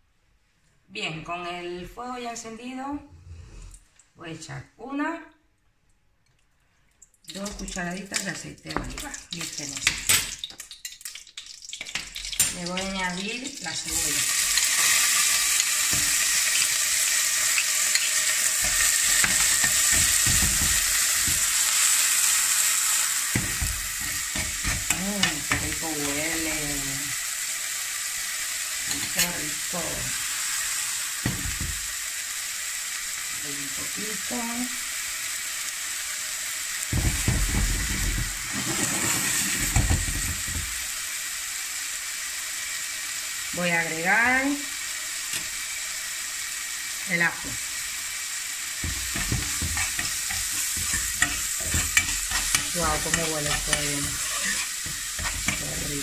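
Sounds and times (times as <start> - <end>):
onion sizzling in hot oil: 7.3 - 56.0
metal spoon scraping a pot: 49.2 - 55.7.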